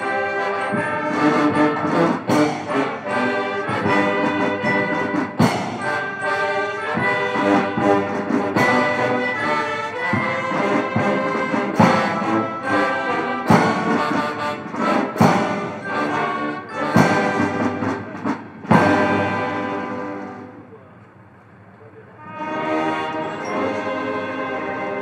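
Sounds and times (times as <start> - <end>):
brass band playing: 0.0 - 21.0, 22.1 - 25.0
heavy drum beat: 0.7 - 9.3, 10.0 - 20.2.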